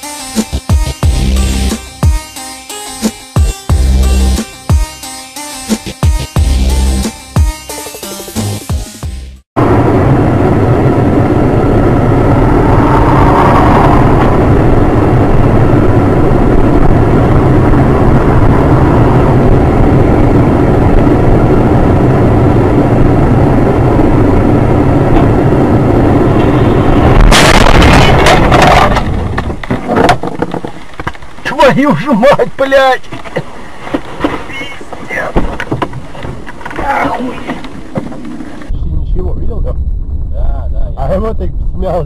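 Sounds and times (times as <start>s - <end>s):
car road and engine rumble: 0.0s - 2.4s, 9.6s - 42.0s
car collision impacts: 33.2s - 36.8s.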